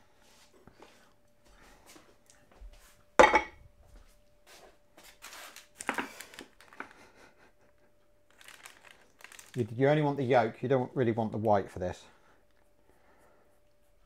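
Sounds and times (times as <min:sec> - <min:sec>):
crockery clinking on wooden worktop: 0:03.2 - 0:03.6.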